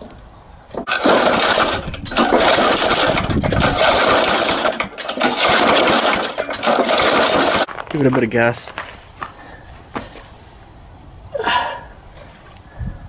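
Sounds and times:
lawnmower recoil starter pulls: 0:00.8 - 0:07.8.

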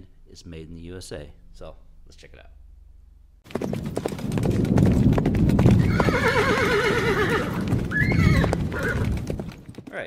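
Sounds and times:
galloping hoofbeats: 0:03.4 - 0:10.0
horse neighing: 0:05.8 - 0:09.2.

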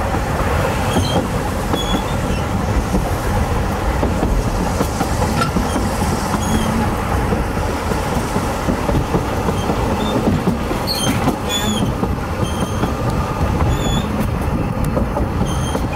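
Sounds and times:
train wheels rumbling on rails: 0:00.0 - 0:15.9
high wheel squeals: 0:00.8 - 0:02.5, 0:05.6 - 0:06.8, 0:09.6 - 0:13.0, 0:13.6 - 0:14.2, 0:15.4 - 0:15.9.

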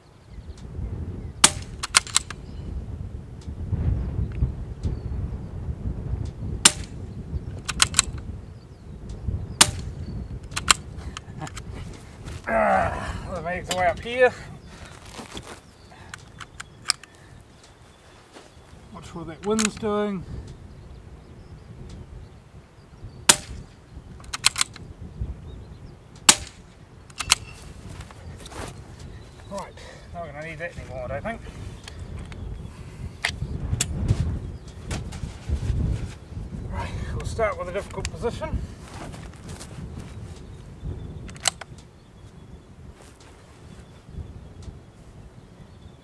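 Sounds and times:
wind on microphone: 0:00.0 - 0:46.0
rifle shots: 0:01.4 - 0:02.3, 0:26.3 - 0:27.5
rifle bolt clicks: 0:01.4 - 0:02.4, 0:07.6 - 0:08.2, 0:09.6 - 0:11.7, 0:16.1 - 0:17.8, 0:19.4 - 0:19.8, 0:24.2 - 0:24.9, 0:26.2 - 0:27.6, 0:41.2 - 0:41.9.

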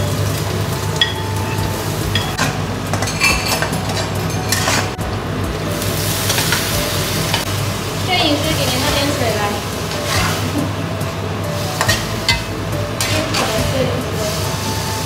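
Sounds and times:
food sizzling in a pan: 0:00.0 - 0:15.0
metal spatula scraping a wok: 0:02.3 - 0:05.0, 0:08.6 - 0:10.8, 0:11.6 - 0:15.0.

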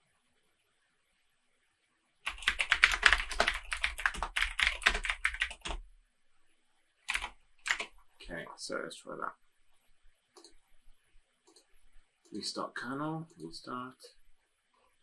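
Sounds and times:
computer keyboard typing: 0:02.2 - 0:05.8, 0:07.1 - 0:08.0, 0:10.4 - 0:10.6, 0:11.4 - 0:11.7.

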